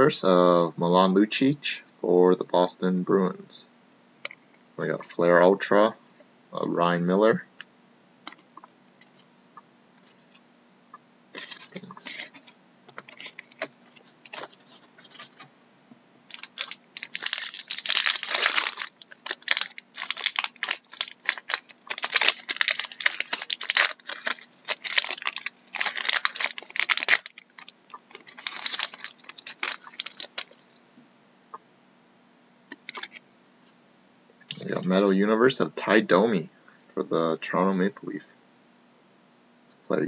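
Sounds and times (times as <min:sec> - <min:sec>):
foil wrapper crinkling and tearing: 0:11.4 - 0:15.5, 0:16.3 - 0:30.7, 0:32.9 - 0:33.2.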